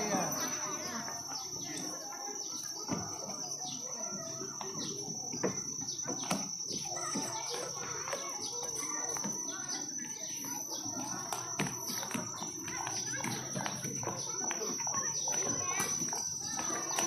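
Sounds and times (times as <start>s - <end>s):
birds chirping: 0.0s - 17.0s
people chattering: 0.0s - 17.0s.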